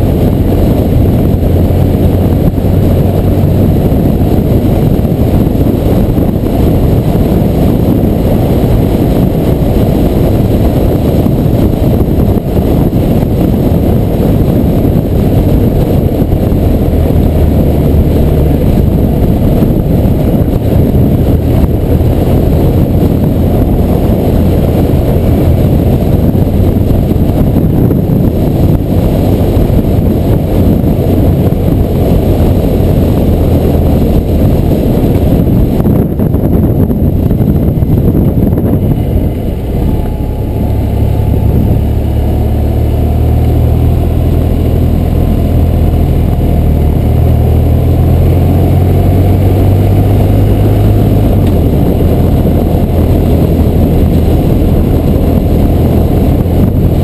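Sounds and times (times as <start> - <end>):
motorcycle engine cruising: 0.0 - 57.0
wind rushing on microphone: 0.0 - 57.0.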